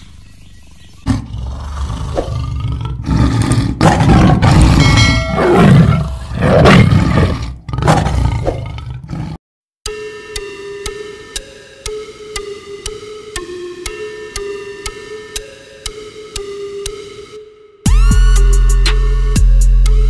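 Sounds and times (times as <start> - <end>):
tiger roaring and growling: 1.0 - 9.4.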